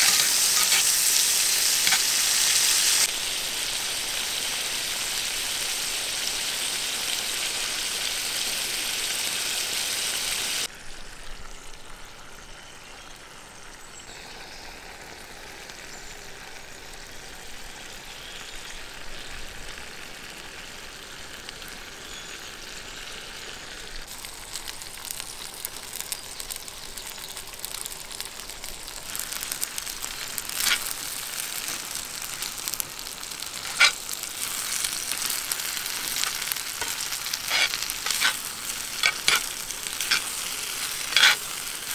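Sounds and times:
seafood sizzling in a skillet: 0.0 - 41.9
tongs clicking against a pan: 36.2 - 41.5.

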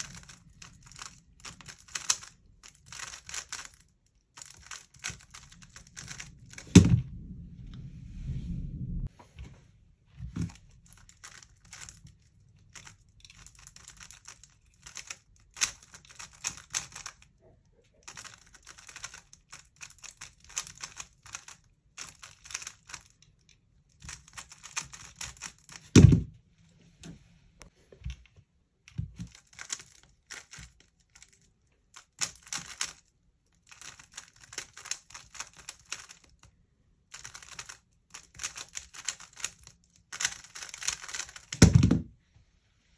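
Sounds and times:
plastic cube layers clicking: 0.0 - 6.9, 12.7 - 17.3, 18.0 - 26.0, 28.9 - 36.5, 37.1 - 41.7
loud thump: 6.7 - 7.4, 26.0 - 26.3.

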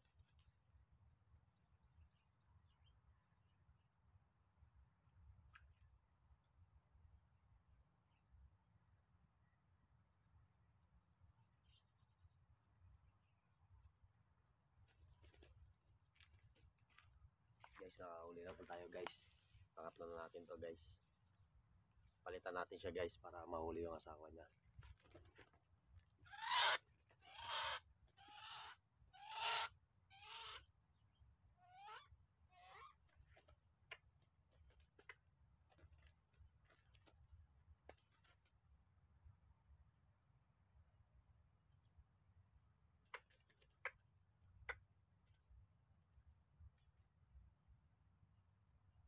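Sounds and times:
harsh raspy bird calls: 26.2 - 30.7, 31.6 - 33.0.

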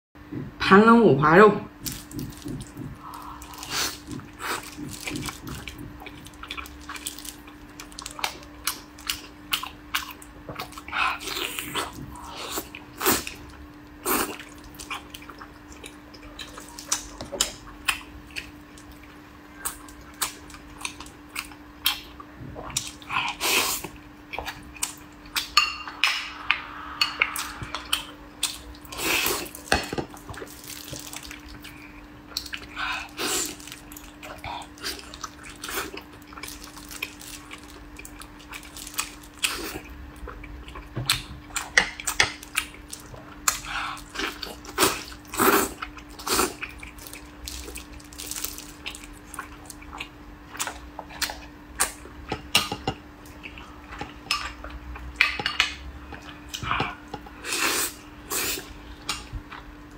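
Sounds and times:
steady low hum: 0.2 - 59.9
wet chewing and lip-smacking: 1.8 - 25.6.

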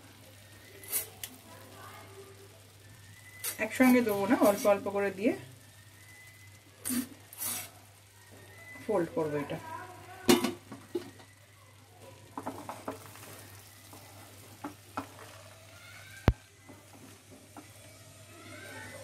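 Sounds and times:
spatula scraping rice in pan: 6.8 - 7.7.

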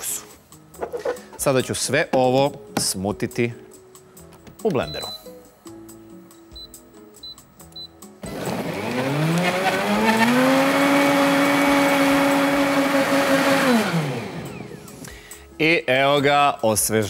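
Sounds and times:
blender motor whine: 8.2 - 15.0.

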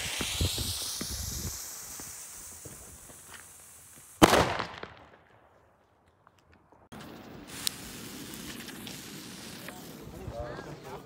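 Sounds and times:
lit fuse sizzling: 0.0 - 4.3, 6.9 - 11.0
firecracker bang: 4.2 - 5.2
sharp crack: 4.2 - 5.5.

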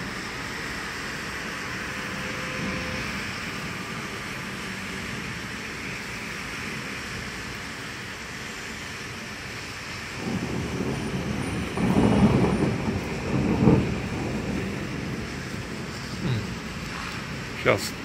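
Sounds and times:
rain hissing: 0.0 - 18.0
rolling thunder: 10.1 - 18.0.

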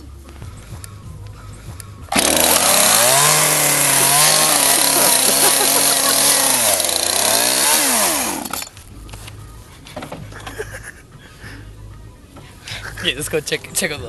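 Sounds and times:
chainsaw engine revving: 2.1 - 8.7.

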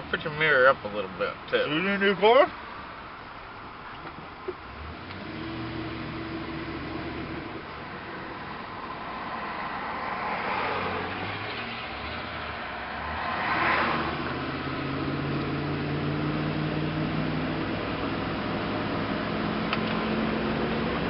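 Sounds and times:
truck engine and road noise: 0.0 - 21.0
vehicle passing by: 8.2 - 17.6.

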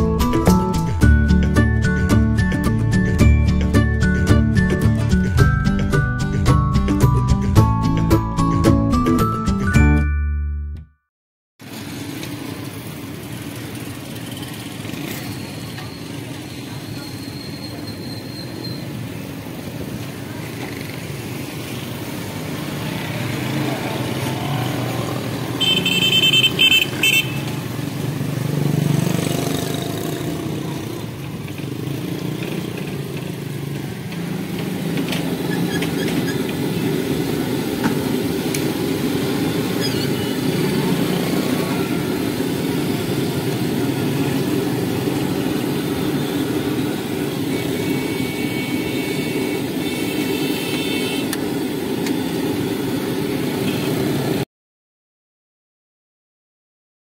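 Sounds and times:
street traffic engines: 0.0 - 10.2, 11.6 - 54.5
vehicle horn: 25.6 - 27.6, 47.3 - 51.4.

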